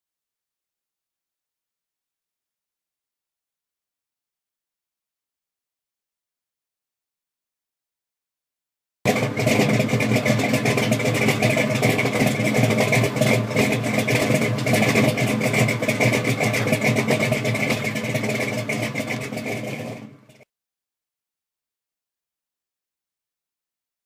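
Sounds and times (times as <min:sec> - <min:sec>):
loud car engine running: 0:09.1 - 0:20.5.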